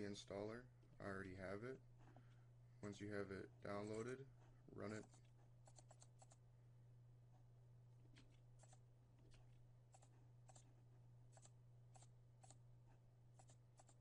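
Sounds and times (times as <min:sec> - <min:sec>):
steady low hum: 0:00.0 - 0:14.0
computer mouse clicks: 0:05.0 - 0:06.4, 0:08.1 - 0:10.7, 0:11.3 - 0:12.6, 0:13.4 - 0:14.0.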